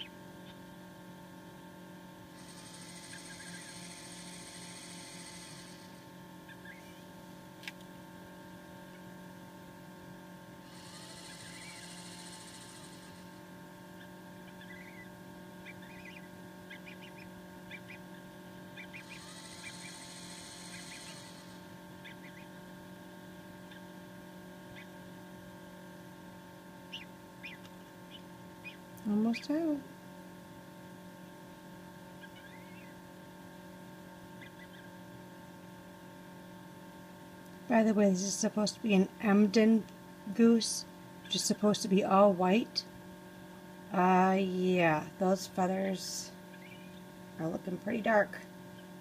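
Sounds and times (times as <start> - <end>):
water pump buzzing: 0.0 - 27.4
incubator humming: 0.0 - 49.0
gosling peeping: 2.9 - 4.1, 6.4 - 7.0, 10.8 - 13.0, 14.0 - 22.6, 24.7 - 25.0, 26.9 - 29.6, 32.1 - 33.0, 34.3 - 35.0, 46.5 - 47.1.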